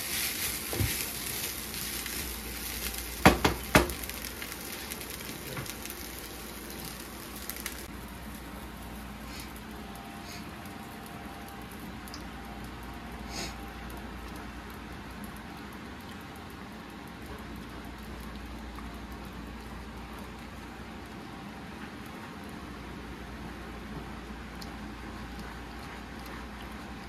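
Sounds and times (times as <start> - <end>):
stir fry sizzling in a pan: 0.0 - 16.7.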